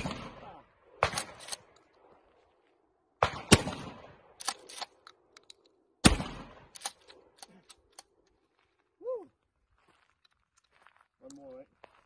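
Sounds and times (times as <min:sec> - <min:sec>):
shotgun shots: 0:00.0 - 0:01.8, 0:03.2 - 0:04.9, 0:06.0 - 0:07.1
shotgun pump clacks: 0:06.7 - 0:08.2.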